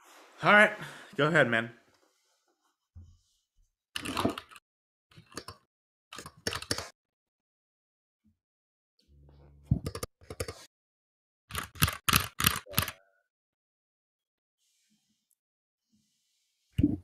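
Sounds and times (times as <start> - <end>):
mechanical keyboard key clacks: 11.5 - 12.9.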